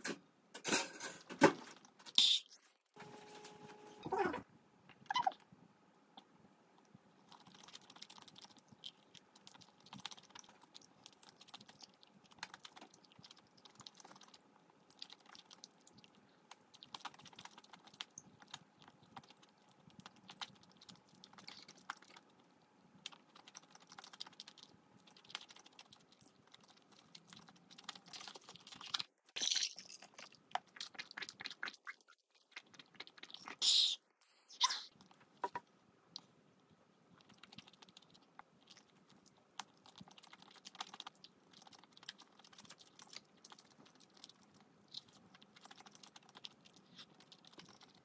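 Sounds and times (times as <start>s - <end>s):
chewing with crunches: 6.7s - 29.4s, 30.3s - 33.6s, 34.9s - 48.0s.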